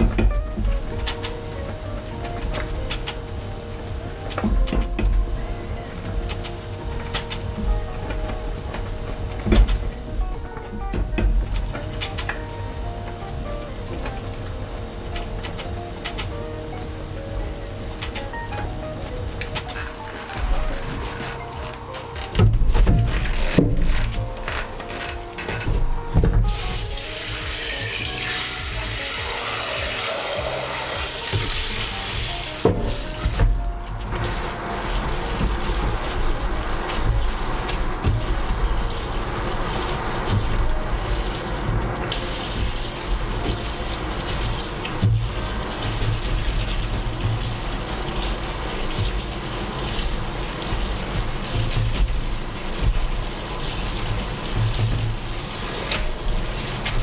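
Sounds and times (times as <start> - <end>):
tap water running into colander: 0.0 - 57.0
hands rinsing noodles: 26.4 - 33.4, 34.0 - 57.0.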